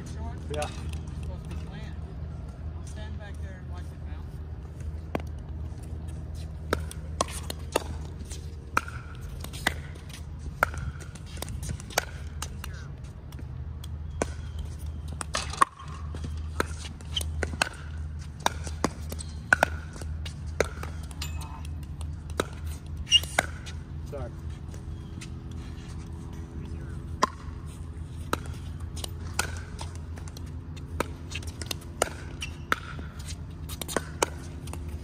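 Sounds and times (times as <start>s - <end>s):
ball bouncing on hard court: 6.6s - 12.6s, 13.3s - 23.8s, 27.2s - 35.0s.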